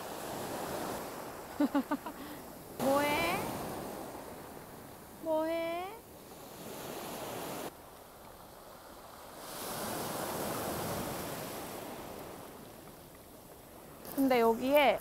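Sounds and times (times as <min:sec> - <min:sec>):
waves washing on pebbles: 0:06.2 - 0:15.0.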